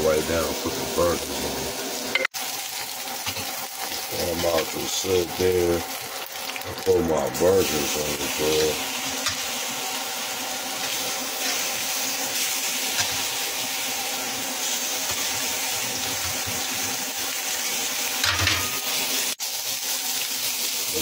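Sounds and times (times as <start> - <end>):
burgers sizzling on grill pan: 0.0 - 21.0.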